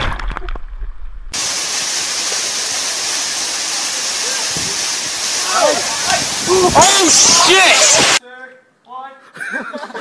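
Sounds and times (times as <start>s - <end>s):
waterfall rushing into pool: 1.4s - 8.2s
wind rumbling on microphone: 5.7s - 8.2s.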